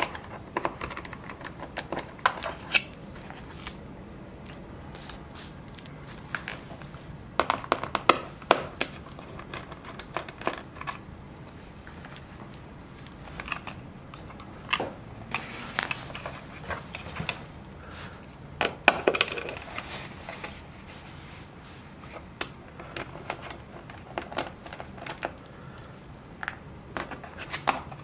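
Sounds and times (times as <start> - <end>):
small parts being handled: 0.0 - 3.8, 4.4 - 20.7.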